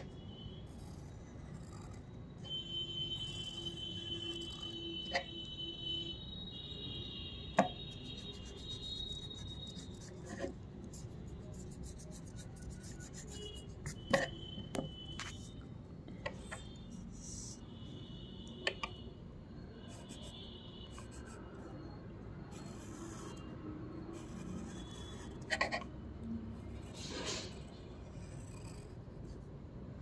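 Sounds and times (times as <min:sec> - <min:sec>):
pencil scratching on paper: 0:00.0 - 0:02.2, 0:03.2 - 0:05.5, 0:07.6 - 0:14.4, 0:16.5 - 0:17.6, 0:19.9 - 0:21.7, 0:22.5 - 0:25.9, 0:26.5 - 0:29.5.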